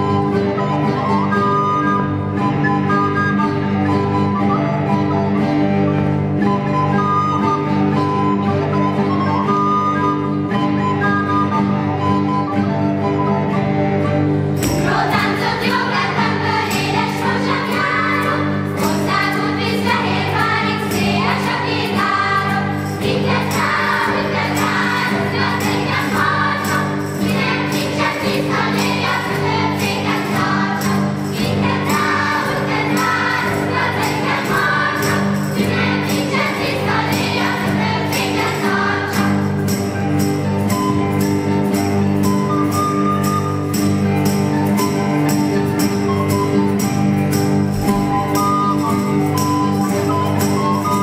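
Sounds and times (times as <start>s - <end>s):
acoustic guitar: 0.0s - 51.0s
children's choir singing: 14.6s - 41.8s
light jingling rhythm: 14.6s - 51.0s.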